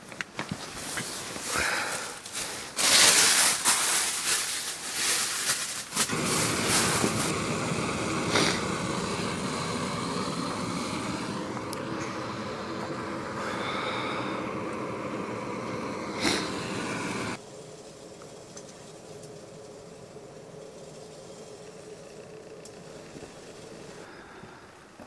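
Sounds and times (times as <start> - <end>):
loud crackly rustling: 0.4 - 7.4
gas stove rushing hiss: 0.8 - 24.9.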